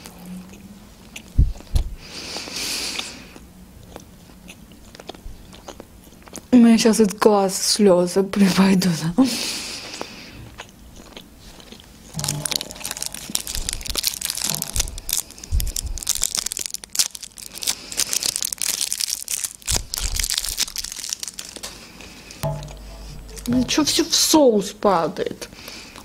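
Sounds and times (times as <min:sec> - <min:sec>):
plastic wrapper crinkling: 0:12.2 - 0:22.3.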